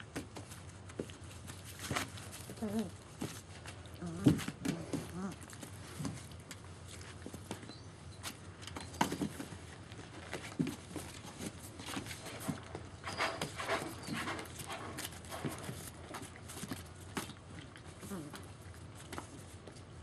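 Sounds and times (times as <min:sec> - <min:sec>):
paw scratches: 0:00.0 - 0:20.0
puppy grunts: 0:02.4 - 0:03.2, 0:04.0 - 0:06.1, 0:17.9 - 0:18.6.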